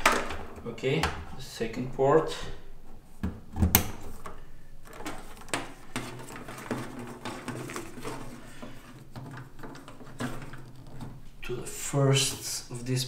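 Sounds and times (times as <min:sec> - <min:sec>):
patch cables clicking and knocking: 0:00.0 - 0:01.3, 0:03.2 - 0:11.5.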